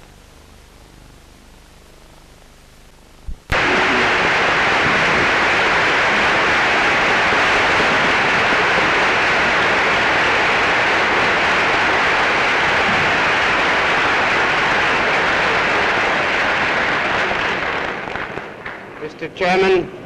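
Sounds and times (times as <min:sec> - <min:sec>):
audience applauding: 0:03.5 - 0:18.9.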